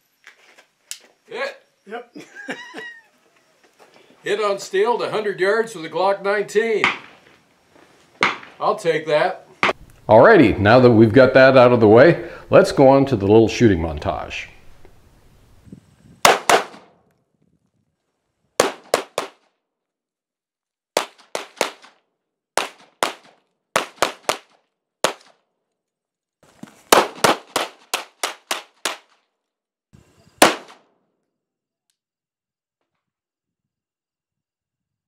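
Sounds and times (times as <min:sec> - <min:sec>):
pistol shots: 0:06.8 - 0:07.3, 0:08.2 - 0:08.6, 0:16.2 - 0:16.9, 0:18.6 - 0:19.4, 0:21.0 - 0:21.9, 0:22.6 - 0:25.4, 0:26.9 - 0:29.1, 0:30.4 - 0:30.8.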